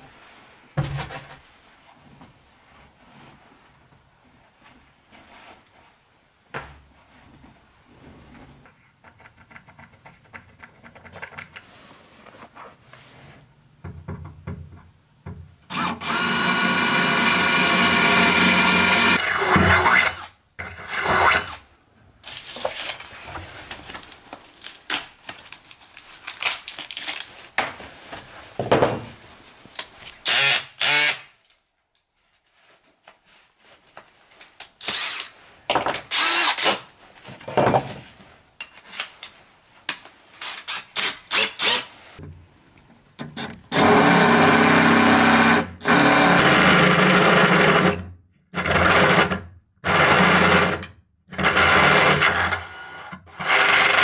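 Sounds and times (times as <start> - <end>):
cordless drill boring through steel: 15.7 - 20.3, 34.8 - 35.3, 36.1 - 36.7.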